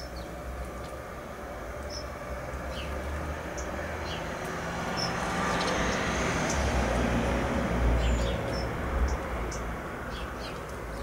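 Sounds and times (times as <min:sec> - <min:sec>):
sparrows chirping: 0:00.0 - 0:11.0.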